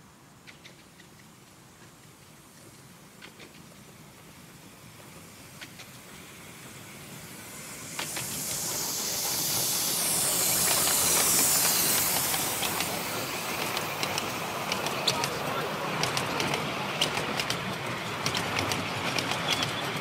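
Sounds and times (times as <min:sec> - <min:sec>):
steam locomotive hissing: 0:01.2 - 0:20.0
carriage wheels clicking: 0:07.9 - 0:20.0.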